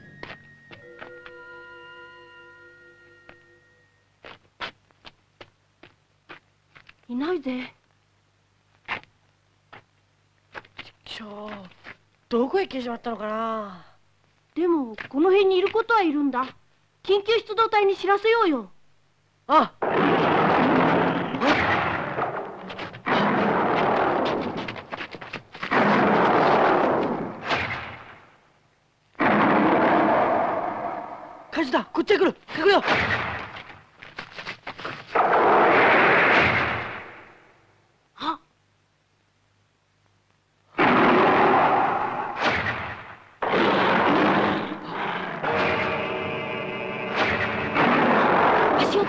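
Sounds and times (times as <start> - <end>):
explosions: 19.8 - 24.6, 35.2 - 37.4, 40.8 - 44.8, 45.4 - 46.2, 47.1 - 49.0.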